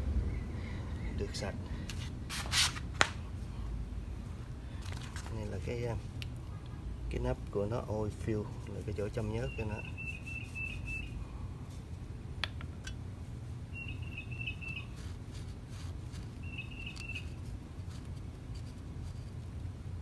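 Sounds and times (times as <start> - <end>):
steady low rumble: 0.0 - 9.4
small bird chirping: 9.3 - 11.2, 13.7 - 15.1, 16.3 - 17.5.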